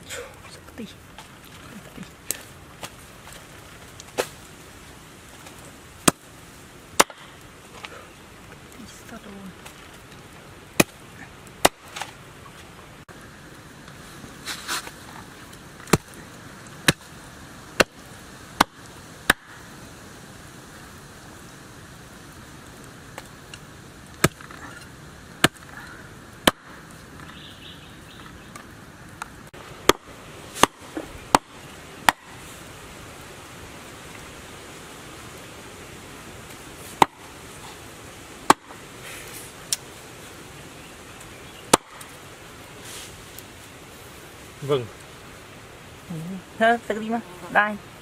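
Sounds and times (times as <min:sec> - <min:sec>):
cleaver chopping on wooden board: 0:07.0 - 0:07.2.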